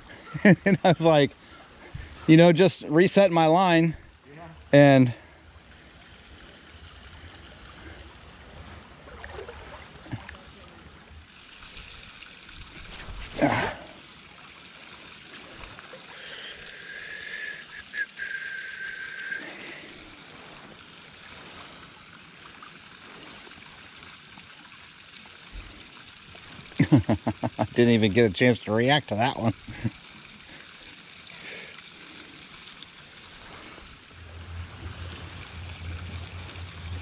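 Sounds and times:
stream water running: 0.0s - 37.0s
thin high steady tone: 33.4s - 37.0s.

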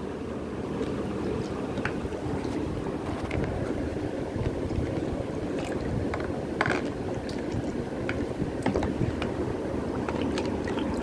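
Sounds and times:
low rushing water: 0.0s - 11.0s.

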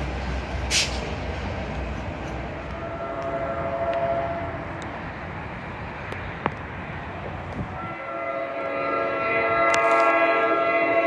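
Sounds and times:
train rumbling on rails: 0.0s - 11.0s
train air horn: 2.7s - 4.6s, 7.7s - 11.0s.

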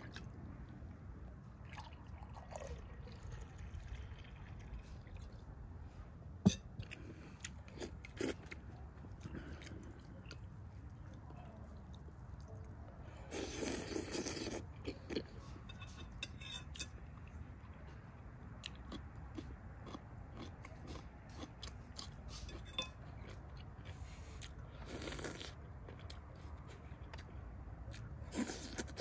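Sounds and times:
chewing and biting food: 18.6s - 29.0s.

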